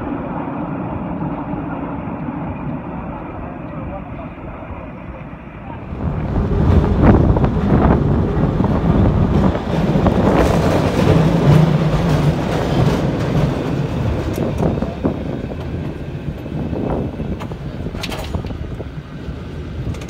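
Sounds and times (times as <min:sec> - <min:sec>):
steel wheels rumbling on rails: 0:00.0 - 0:20.0.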